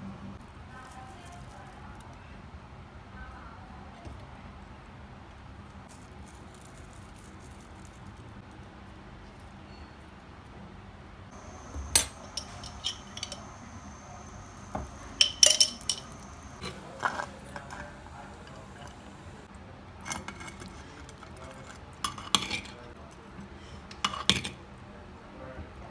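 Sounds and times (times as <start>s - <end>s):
metal spoon clinking on clay pot: 11.4s - 19.3s.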